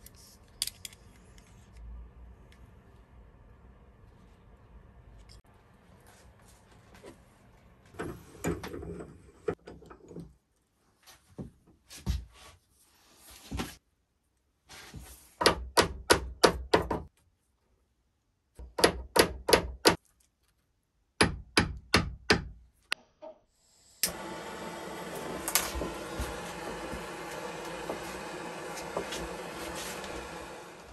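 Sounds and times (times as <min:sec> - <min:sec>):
gas torch hissing: 0:24.0 - 0:30.9.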